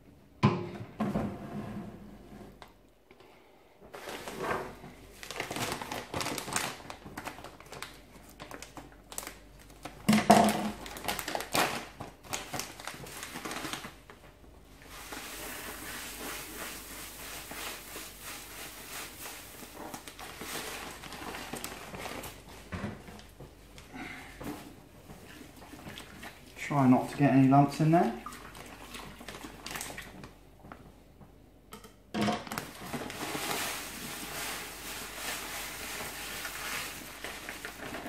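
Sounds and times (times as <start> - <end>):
plastic bag crinkling: 5.1 - 14.2, 14.8 - 24.5, 28.2 - 30.3, 32.4 - 38.0
grain pouring: 32.6 - 38.0.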